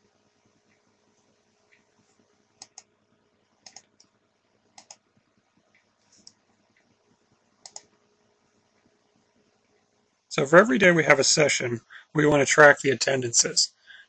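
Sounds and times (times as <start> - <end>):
faint steady hiss: 0.0 - 14.0
computer mouse clicks: 2.6 - 2.9, 3.6 - 4.2, 4.8 - 5.1, 7.6 - 8.0.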